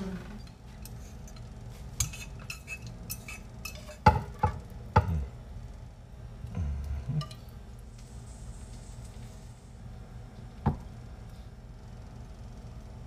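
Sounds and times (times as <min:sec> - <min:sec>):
cookware clinking against bowls: 0:00.4 - 0:05.1.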